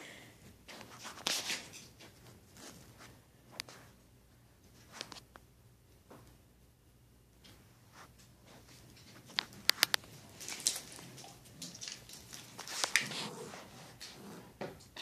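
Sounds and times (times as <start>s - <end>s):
dog claws clicking on wood floor: 8.9s - 13.3s.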